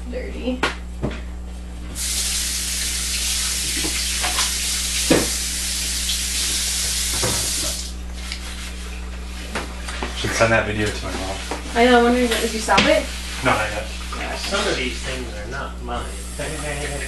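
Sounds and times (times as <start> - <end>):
steady hiss: 2.0 - 8.0, 16.0 - 17.0.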